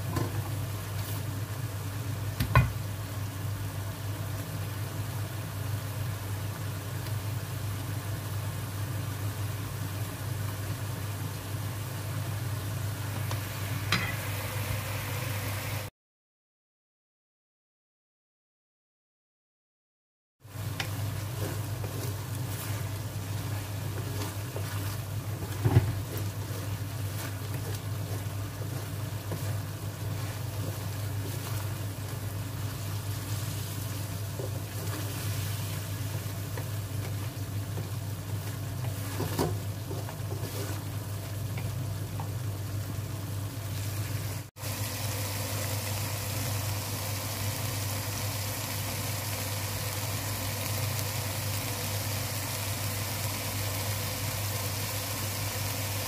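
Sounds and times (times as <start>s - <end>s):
sauce simmering in a wok: 0.0s - 15.9s, 20.4s - 56.0s
wooden spatula scraping a pan: 20.8s - 35.8s, 36.4s - 41.1s.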